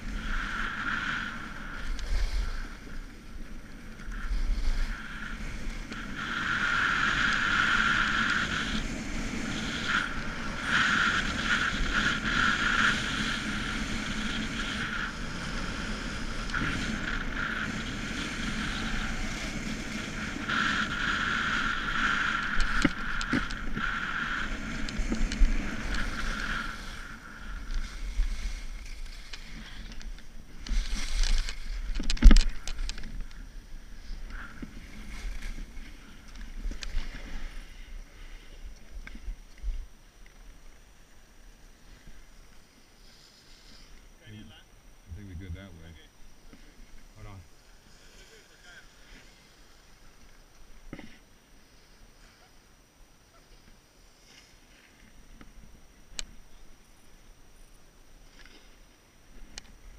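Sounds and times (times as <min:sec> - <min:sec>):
skis carving on snow: 0:00.0 - 0:39.8.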